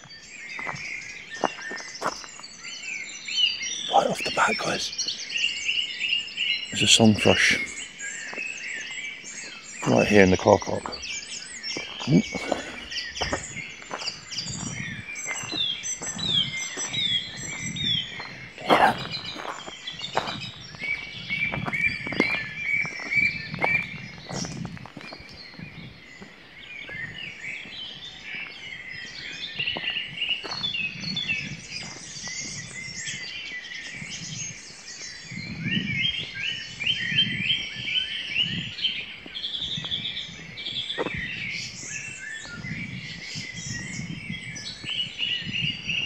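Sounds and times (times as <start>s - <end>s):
song thrush singing close by: 0.0s - 46.0s
songbirds singing: 0.0s - 46.0s.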